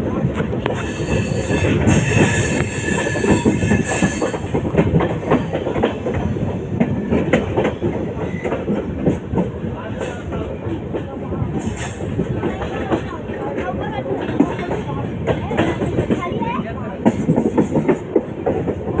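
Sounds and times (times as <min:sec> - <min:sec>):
train wheels on rails: 0:00.0 - 0:19.0.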